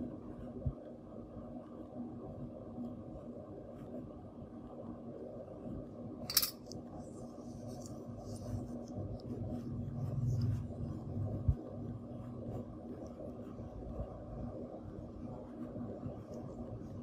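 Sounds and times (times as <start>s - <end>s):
steady low hum: 0.0s - 17.0s
sharp metallic click: 6.3s - 6.8s.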